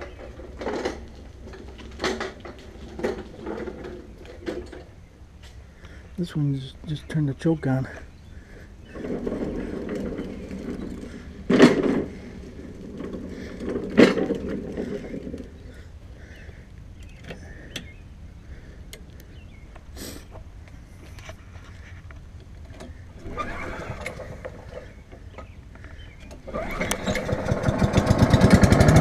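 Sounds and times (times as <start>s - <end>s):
small engine starting: 23.2s - 25.0s, 26.3s - 29.0s.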